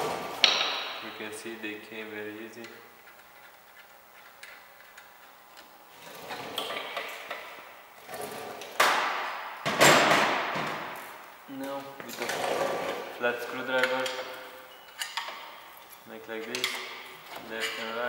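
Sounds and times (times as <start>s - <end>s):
metal tools clattering: 13.6s - 18.0s.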